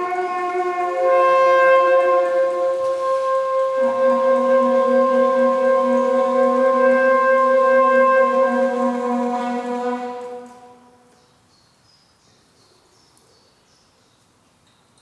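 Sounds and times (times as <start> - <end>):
long low wind instrument note: 0.0 - 11.2.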